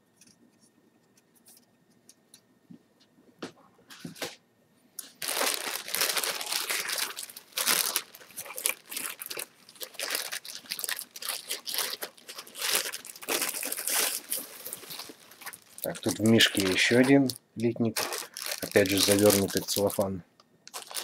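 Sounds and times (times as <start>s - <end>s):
cellophane bag crinkling: 5.0s - 20.1s, 20.7s - 21.0s.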